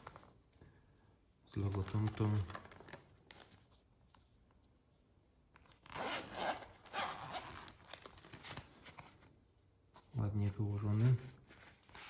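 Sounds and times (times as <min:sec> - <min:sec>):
zipper pulled open: 0:05.8 - 0:08.0.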